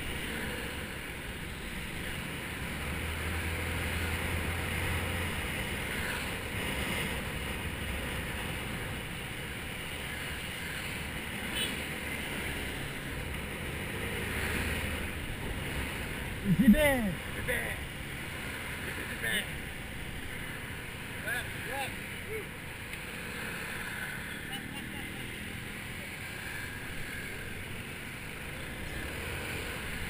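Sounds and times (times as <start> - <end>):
scooter engine running: 15.0 - 30.0.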